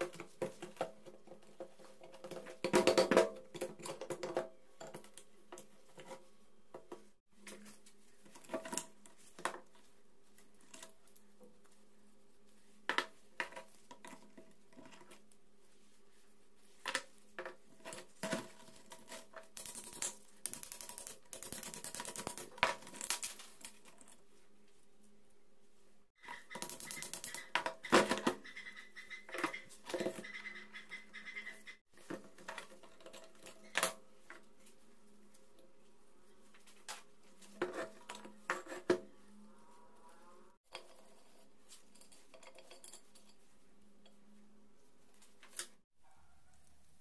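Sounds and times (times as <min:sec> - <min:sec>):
rustling clatter of parts: 0:16.6 - 0:24.4, 0:31.9 - 0:35.4, 0:40.7 - 0:43.6
metal parts knocking and clinking: 0:41.7 - 0:43.4.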